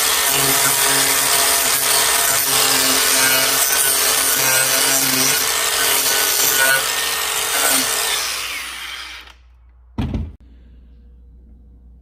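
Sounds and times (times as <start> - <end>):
angle grinder carving wood: 0.0 - 9.4
dull thump: 10.0 - 10.4.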